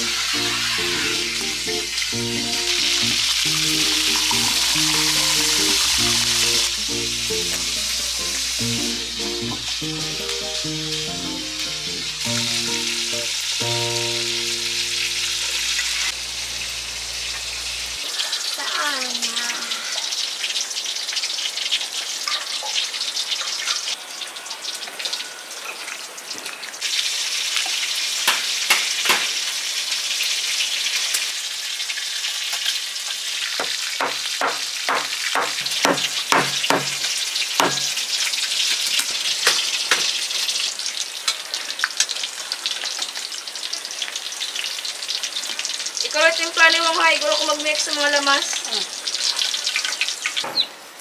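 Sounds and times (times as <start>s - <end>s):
fish sizzling in oil: 0.0s - 51.0s
sharp knocks: 33.6s - 38.0s.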